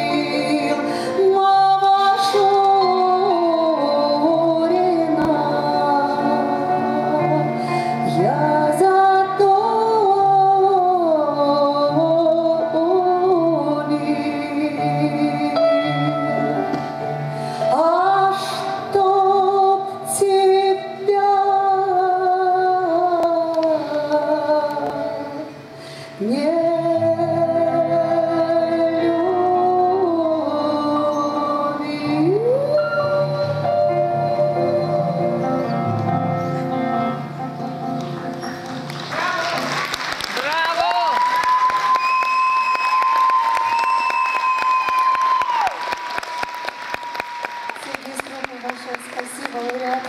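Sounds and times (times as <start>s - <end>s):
woman singing: 0.0s - 16.8s, 17.6s - 35.8s
grand piano: 0.0s - 41.1s.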